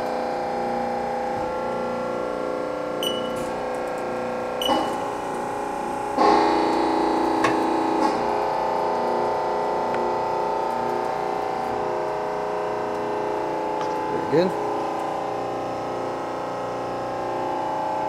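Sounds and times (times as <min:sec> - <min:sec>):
machine clunk: 0:04.6 - 0:05.1.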